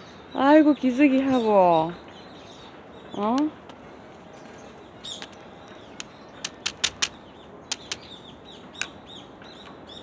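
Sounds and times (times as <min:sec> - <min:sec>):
small birds chirping: 0:00.0 - 0:10.0
sharp clicks: 0:06.0 - 0:08.1.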